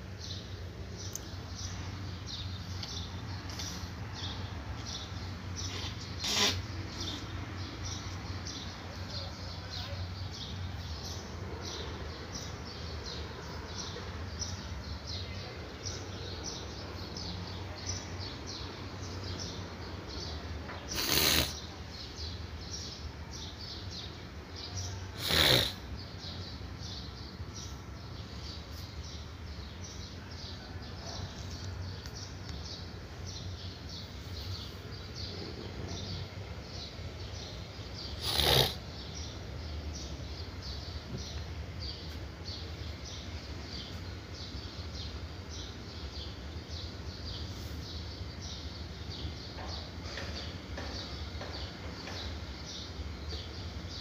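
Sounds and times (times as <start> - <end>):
marker squeaking on whiteboard: 5.7 - 6.6.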